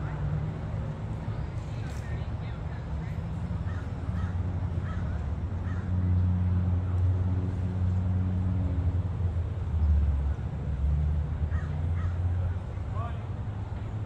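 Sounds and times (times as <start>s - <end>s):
low engine hum: 0.0s - 14.0s.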